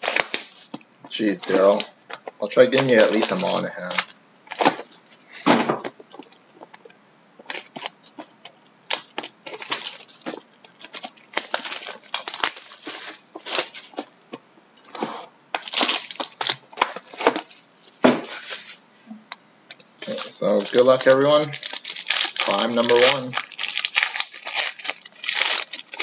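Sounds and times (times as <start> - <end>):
packaging crinkling and tearing: 0.0 - 5.1, 5.9 - 14.1, 14.8 - 18.7, 19.7 - 26.0.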